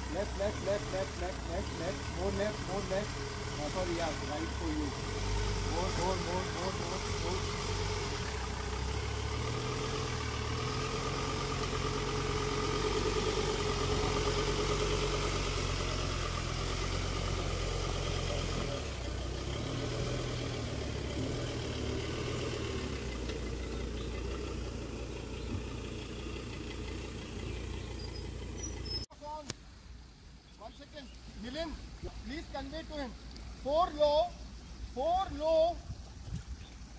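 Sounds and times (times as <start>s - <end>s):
diesel engine running: 0.0s - 29.1s.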